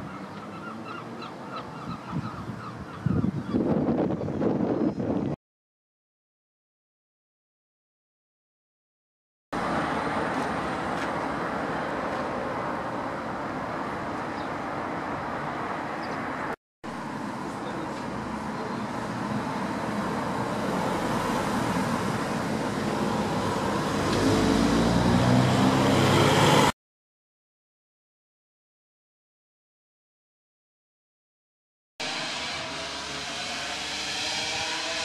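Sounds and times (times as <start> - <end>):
street traffic noise: 0.0 - 4.1, 9.6 - 26.8, 32.0 - 35.0
car passing close by: 19.0 - 26.7.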